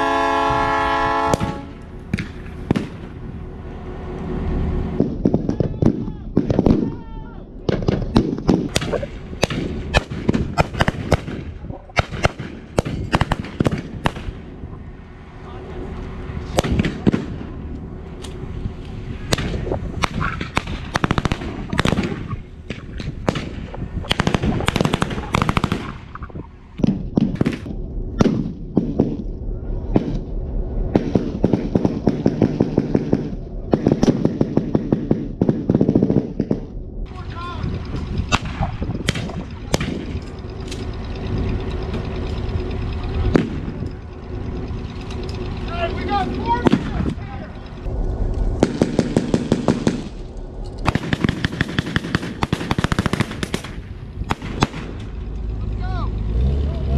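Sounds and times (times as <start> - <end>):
diesel locomotive drone: 0.0 - 56.9
rifle shots: 7.7 - 14.4, 19.3 - 29.2, 30.9 - 36.7, 48.6 - 50.2, 50.8 - 55.0
machine-gun bursts: 24.1 - 26.0.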